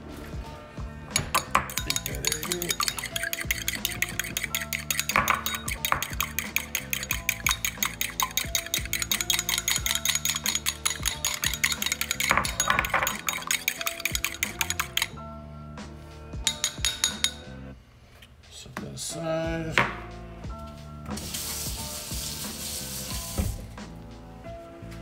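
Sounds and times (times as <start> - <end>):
background music with held notes: 0.0 - 25.0
fork beating egg in bowl: 1.2 - 15.2, 16.4 - 17.4.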